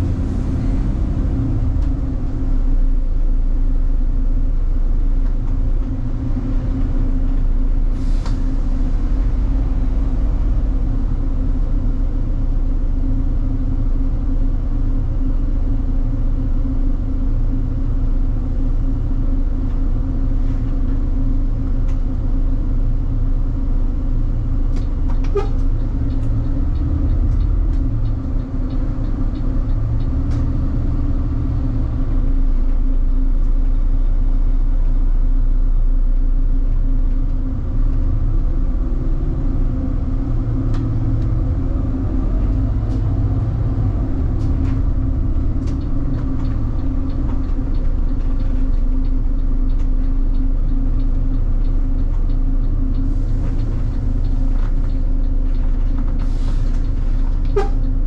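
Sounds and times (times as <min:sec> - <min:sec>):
bus engine and road rumble: 0:00.0 - 0:58.0.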